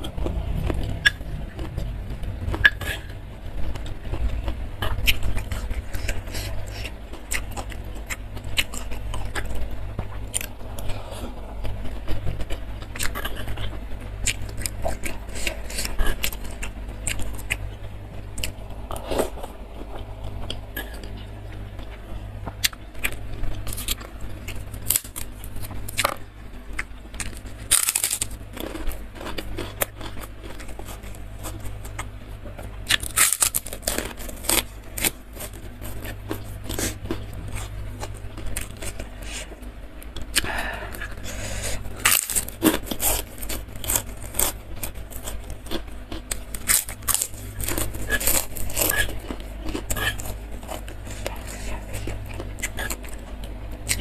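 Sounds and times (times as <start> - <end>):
low steady hum: 0.0 - 54.0
wet chewing: 18.4 - 54.0
crunchy cracker bite: 27.3 - 30.1, 32.9 - 39.0.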